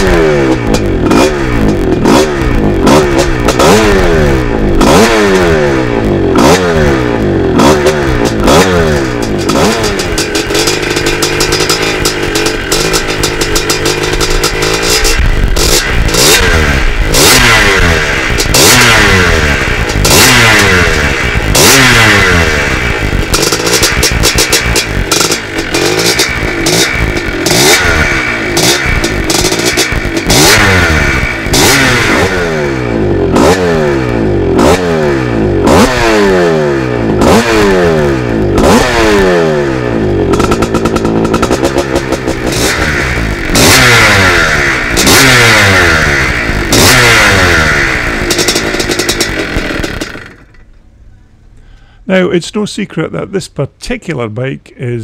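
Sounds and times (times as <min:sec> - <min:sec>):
dirt bike engine revving: 0:00.0 - 0:50.7.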